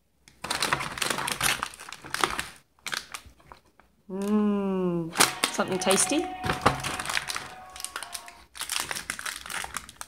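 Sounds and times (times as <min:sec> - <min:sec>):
plastic wrappers crinkling: 0:00.3 - 0:03.9, 0:05.2 - 0:10.0
person making drawn-out vocal sound: 0:04.1 - 0:07.9.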